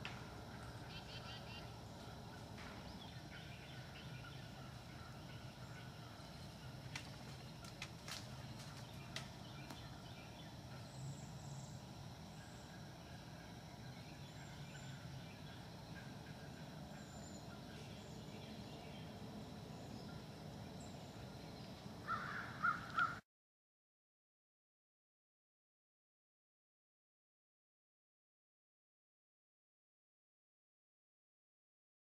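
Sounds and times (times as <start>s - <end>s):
faint high bird chirps: 0.7s - 6.7s.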